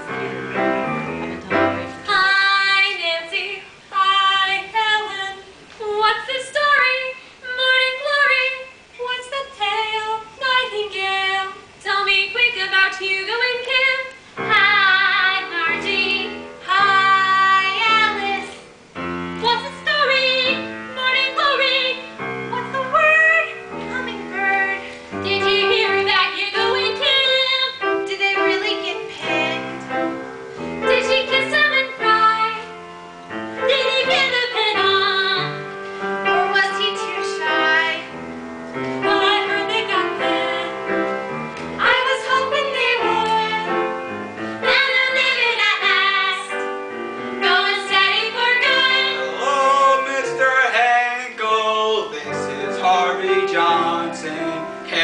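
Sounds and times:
piano accompaniment: 0:00.0 - 0:05.2, 0:12.6 - 0:55.0
young female voices singing: 0:01.5 - 0:18.7, 0:19.4 - 0:30.1, 0:30.8 - 0:32.8, 0:33.6 - 0:38.1, 0:39.0 - 0:41.0, 0:41.8 - 0:44.0, 0:44.6 - 0:46.7, 0:47.4 - 0:49.4.

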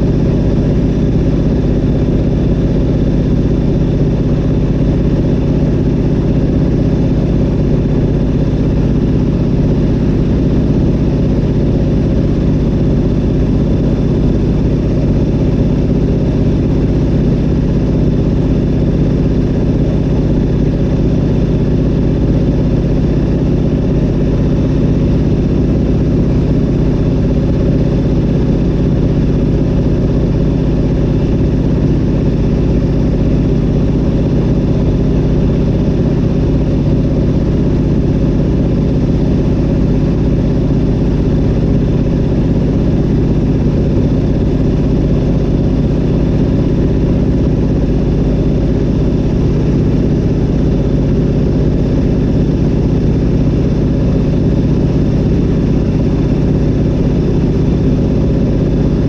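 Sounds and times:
propeller plane engine droning: 0:00.0 - 0:59.0.

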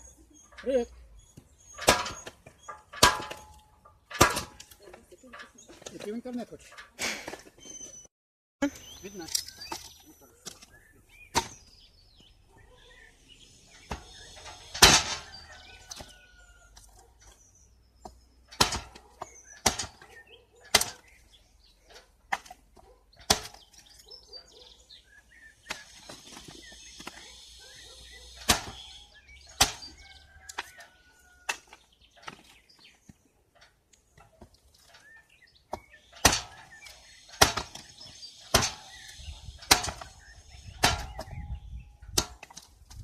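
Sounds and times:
birds chirping: 0:00.0 - 0:43.0
wood splitter chopping wood: 0:01.8 - 0:02.4, 0:03.0 - 0:04.8, 0:11.2 - 0:11.6, 0:13.8 - 0:16.1, 0:18.5 - 0:21.2, 0:23.2 - 0:23.9, 0:28.4 - 0:30.8, 0:35.0 - 0:41.5, 0:42.1 - 0:43.0.

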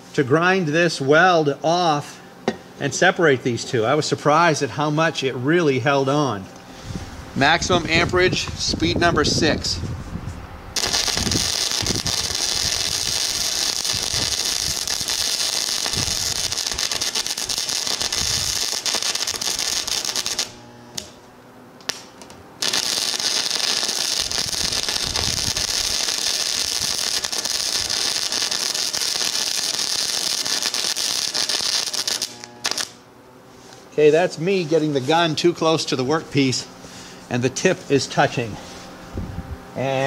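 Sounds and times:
welding arc crackling: 0:10.8 - 0:33.1.

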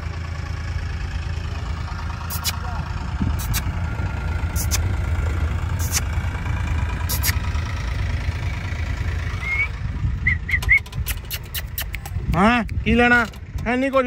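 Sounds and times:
engine idling: 0:00.0 - 0:14.0
short chirps: 0:02.3 - 0:02.6, 0:03.4 - 0:03.7, 0:04.6 - 0:04.8, 0:05.8 - 0:06.1, 0:07.1 - 0:07.4.

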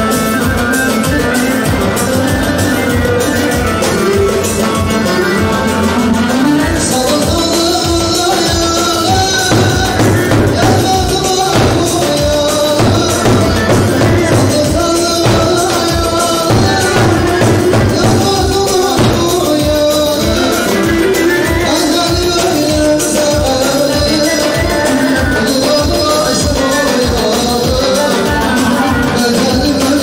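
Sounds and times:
bass drum dance rhythm: 0:00.0 - 0:30.0.

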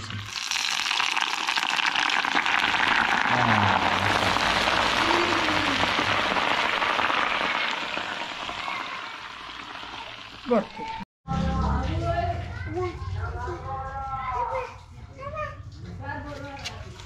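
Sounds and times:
hot oil sizzling and bubbling: 0:00.0 - 0:11.0.

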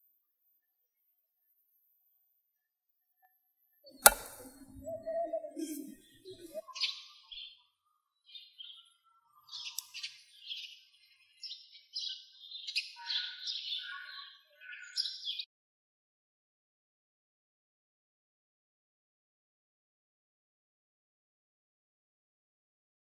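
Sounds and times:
birds chirping: 0:03.9 - 0:15.5
cleaver chopping into wood: 0:04.0 - 0:04.6.

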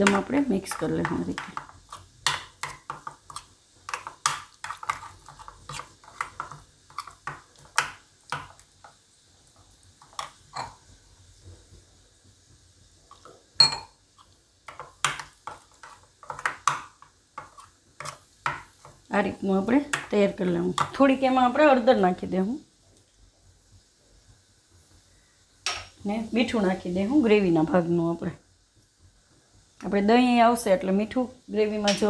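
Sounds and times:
spoon scraping paste in bowl: 0:00.0 - 0:08.6, 0:14.2 - 0:19.0.

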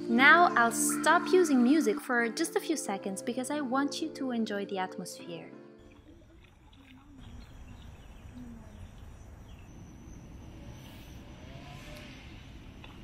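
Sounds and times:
low rumble of river: 0:05.8 - 0:13.0
faint wavering calls: 0:05.9 - 0:12.6.

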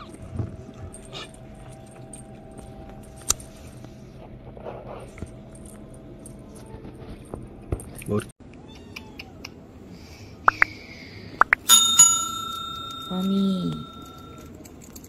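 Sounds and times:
small bell jingling: 0:11.7 - 0:15.0.

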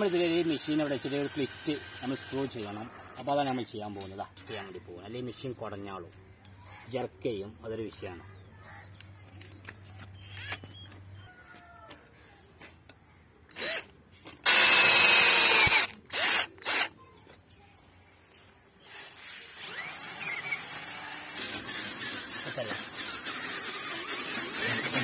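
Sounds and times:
cordless drill running in spurts: 0:00.0 - 0:03.3, 0:13.5 - 0:16.9, 0:19.1 - 0:25.0.

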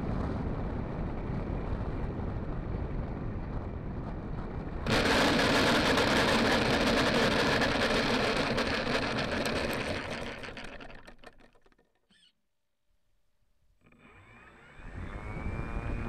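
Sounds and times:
model airplane engine ticking over: 0:04.8 - 0:12.3
wheels rattling on gravel: 0:04.9 - 0:12.0.

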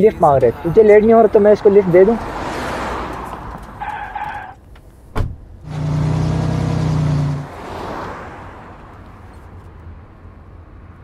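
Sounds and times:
tyres hissing on road: 0:01.3 - 0:04.6, 0:05.7 - 0:09.2
car engine running: 0:01.3 - 0:07.5.

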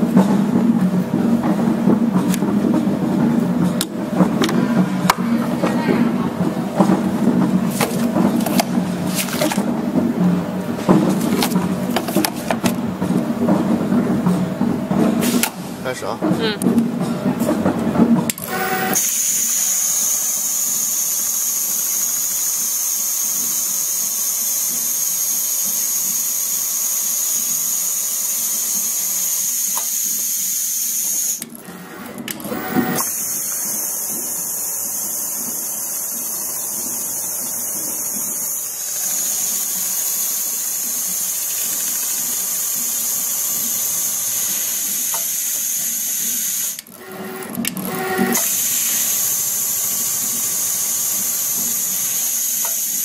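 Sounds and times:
sewing machine whirring: 0:17.9 - 0:53.0.

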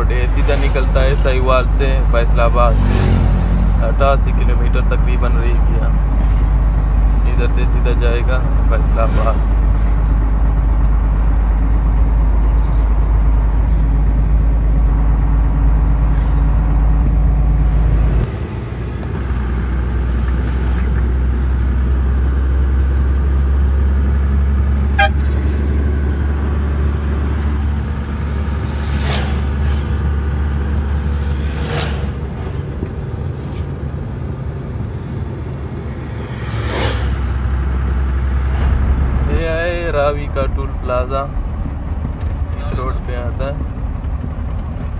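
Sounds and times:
truck engine running: 0:00.0 - 0:44.9
short horn toot: 0:24.9 - 0:25.5.

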